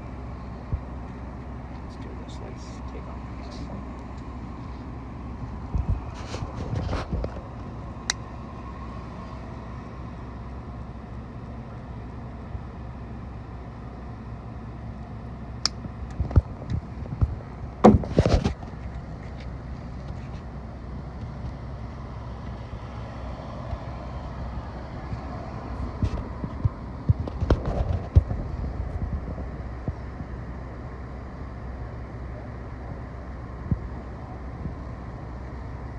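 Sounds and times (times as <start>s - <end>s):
outdoor background hum: 0.0s - 35.9s
knocks and rustles of handling: 16.2s - 20.5s.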